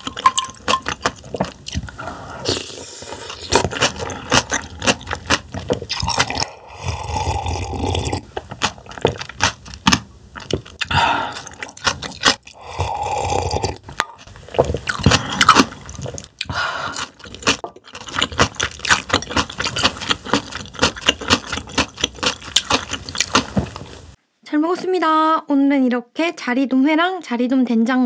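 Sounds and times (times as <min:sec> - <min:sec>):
chewing: 0:00.0 - 0:24.0
slurping broth: 0:01.1 - 0:09.3, 0:10.6 - 0:18.8.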